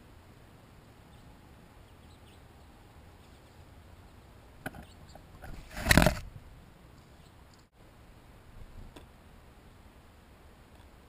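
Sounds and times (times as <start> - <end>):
rustling bump on microphone: 4.7 - 6.4.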